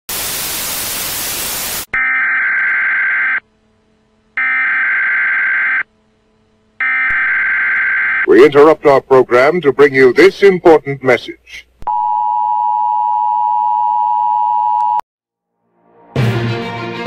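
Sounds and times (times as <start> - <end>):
tv static hiss: 0.1 - 3.4
harsh electronic alert tones: 6.8 - 8.3.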